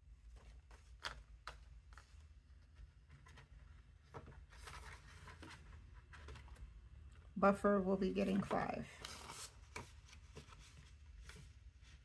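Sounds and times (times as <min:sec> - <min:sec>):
paper banknotes rustling: 0:00.2 - 0:06.7.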